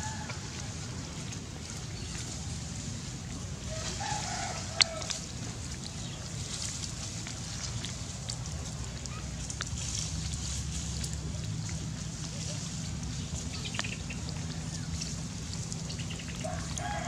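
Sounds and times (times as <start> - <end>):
rooster crowing: 0.0 - 0.4, 3.7 - 5.1, 16.4 - 17.0
steady low rumble: 0.0 - 17.0.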